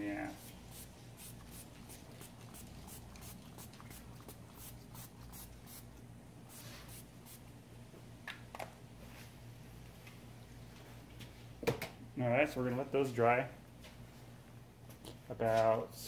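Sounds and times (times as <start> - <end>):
spray hissing: 0.3 - 5.9
spray bottle squirts: 0.4 - 5.9.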